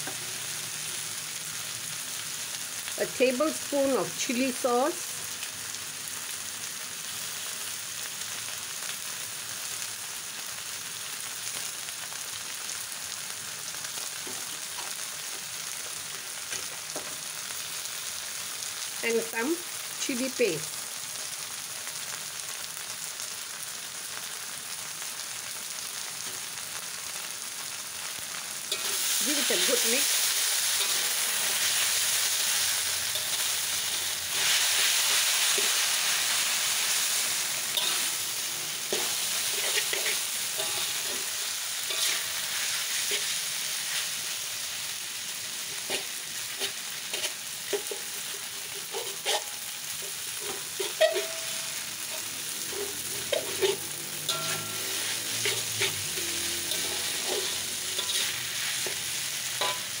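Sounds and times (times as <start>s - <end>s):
noodles sizzling in a wok: 0.0s - 60.0s
spatula clinking against a wok: 46.6s - 60.0s.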